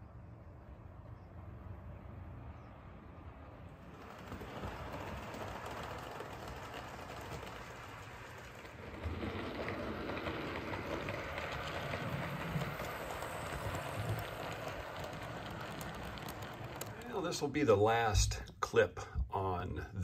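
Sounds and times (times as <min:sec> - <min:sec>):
model train rumbling on track: 0:02.9 - 0:18.1.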